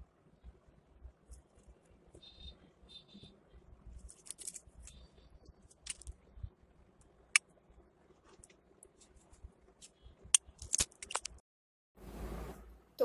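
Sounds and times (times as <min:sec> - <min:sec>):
paper rustling: 0:04.0 - 0:05.1.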